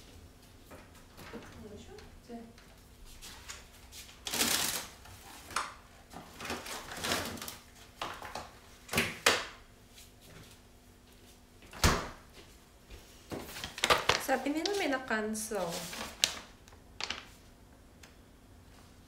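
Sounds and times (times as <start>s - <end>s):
plastic-wrapped packs rustling: 3.1s - 8.5s, 13.4s - 17.4s.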